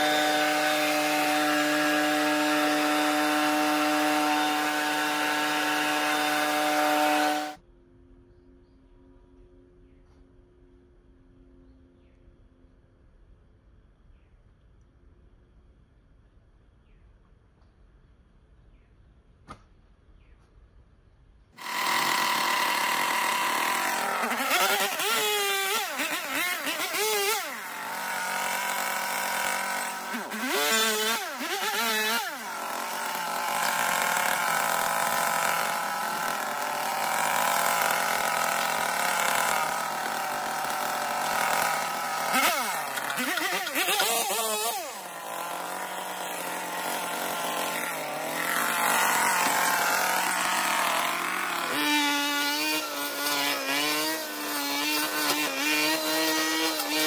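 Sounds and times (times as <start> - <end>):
brush cutter engine cutting weeds: 0.0 - 7.6, 21.6 - 57.0.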